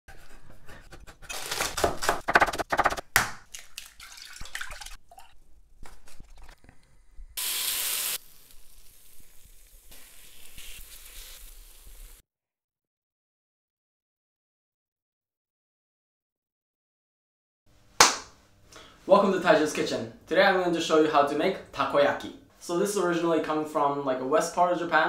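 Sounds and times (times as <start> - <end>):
loud hiss: 7.4 - 12.2
pan sizzling: 7.4 - 12.2.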